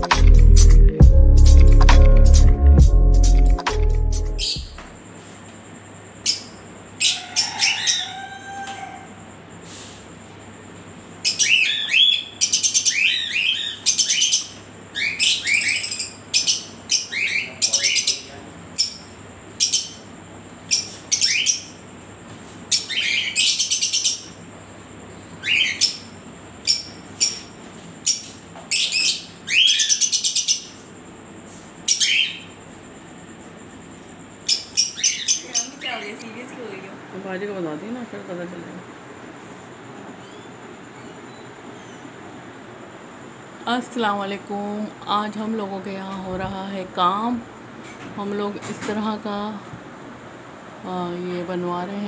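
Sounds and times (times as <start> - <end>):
parrots chirping and screeching: 6.3 - 9.0, 11.2 - 20.1, 20.7 - 21.8, 22.7 - 24.4, 25.4 - 30.8, 31.8 - 32.5, 34.4 - 36.3.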